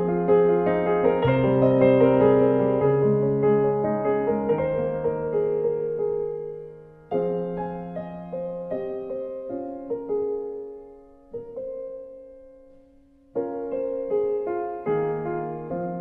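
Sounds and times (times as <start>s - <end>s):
slow gentle piano music: 0.0s - 16.0s.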